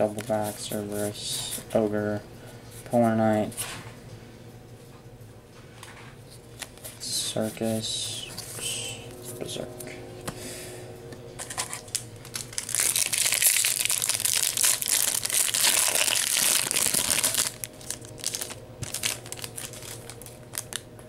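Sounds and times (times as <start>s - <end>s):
foil pack crinkling and tearing: 11.4s - 20.9s.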